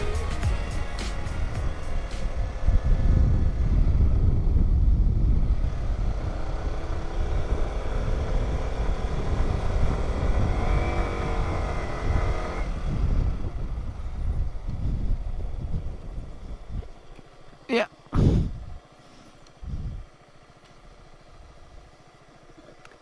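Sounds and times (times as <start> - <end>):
motorcycle engine: 0.0 - 23.0
wind buffeting microphone: 0.5 - 17.1, 19.6 - 20.1.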